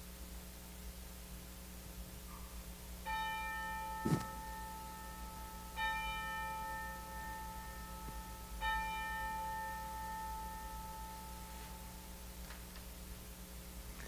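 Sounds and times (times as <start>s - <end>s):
short low thump: 4.0s - 4.3s.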